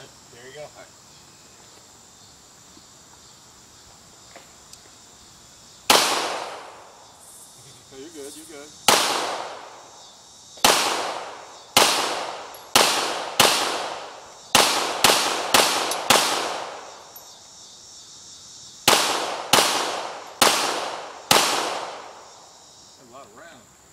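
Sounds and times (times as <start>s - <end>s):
pistol shots with echo: 5.9s - 6.9s, 8.8s - 9.8s, 10.6s - 17.1s, 18.8s - 22.3s.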